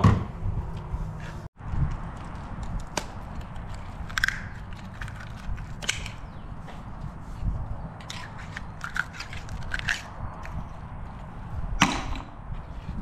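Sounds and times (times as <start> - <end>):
shell crunching: 2.7 - 6.3, 8.0 - 10.7
oyster knife scraping shells: 3.4 - 6.3, 8.0 - 10.6.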